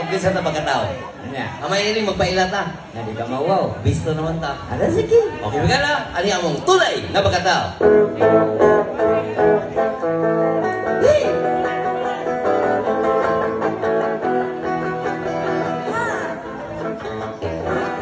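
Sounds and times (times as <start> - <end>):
band backing: 3.8 - 18.0
electric guitar: 7.6 - 18.0.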